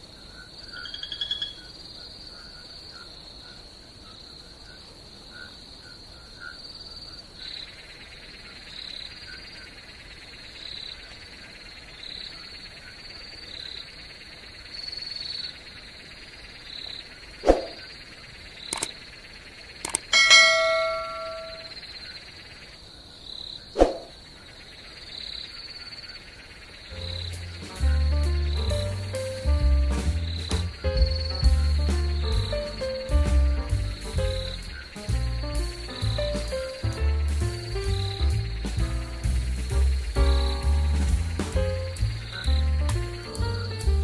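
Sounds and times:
crickets chirping: 0:00.0 - 0:44.0
sharp knocks: 0:19.9 - 0:21.7
short ringing ding: 0:20.1 - 0:21.7.

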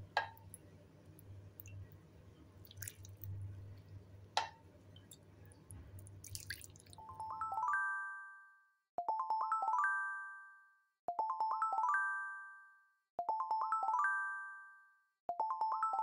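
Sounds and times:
low steady hum: 0:00.0 - 0:07.6
liquid dripping and squishing: 0:00.1 - 0:07.1
music chime: 0:07.1 - 0:16.0.

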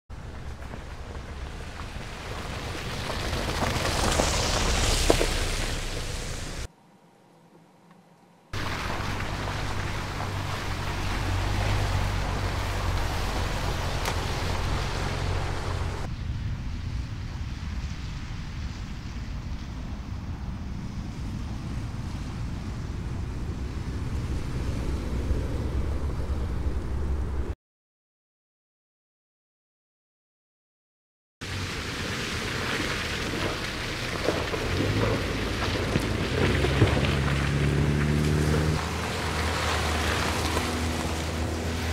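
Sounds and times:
tyres churning through mud: 0:00.1 - 0:06.7, 0:08.6 - 0:16.1, 0:31.4 - 0:41.9
low engine hum: 0:00.1 - 0:18.1, 0:19.5 - 0:27.6, 0:31.4 - 0:41.9.

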